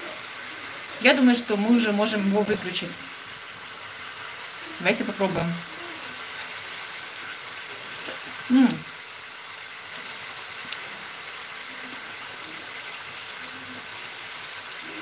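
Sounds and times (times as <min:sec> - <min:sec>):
caramel sizzling in a pan: 0:00.0 - 0:15.0
woman humming mm: 0:08.0 - 0:08.9.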